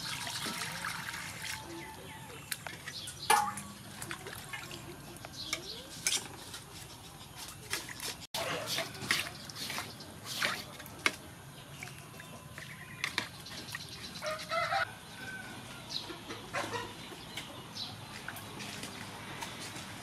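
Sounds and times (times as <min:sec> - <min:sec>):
chickens clucking: 0:15.9 - 0:17.7.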